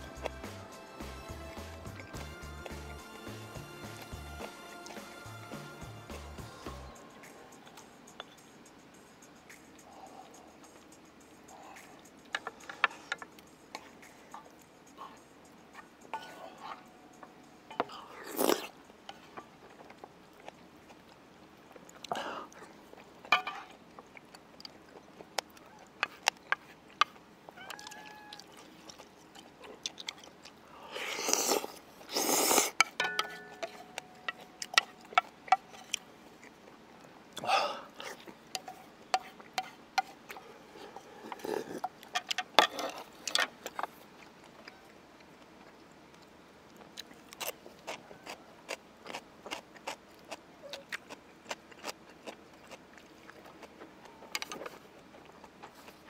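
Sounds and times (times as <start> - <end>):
wet chewing: 0.0 - 5.5, 9.5 - 56.0
mouth clicks: 6.7 - 20.6
loud slurps: 31.0 - 32.8.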